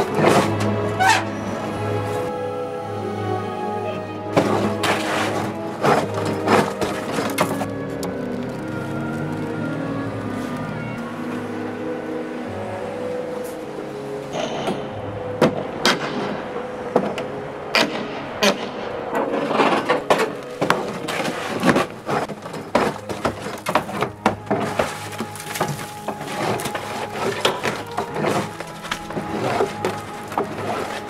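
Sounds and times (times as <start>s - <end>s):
wood cracking and splitting: 0.0s - 1.3s, 4.3s - 11.0s, 15.4s - 31.0s.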